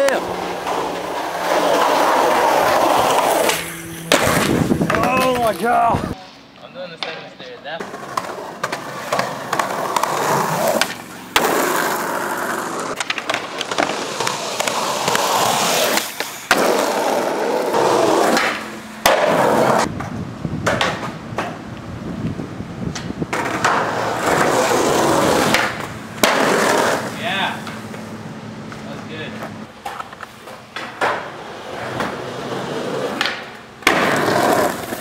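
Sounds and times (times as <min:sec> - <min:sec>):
skateboard wheels rolling on concrete: 0:00.0 - 0:35.0
skateboard tail clacking: 0:07.0 - 0:21.8, 0:22.9 - 0:28.1, 0:28.7 - 0:35.0.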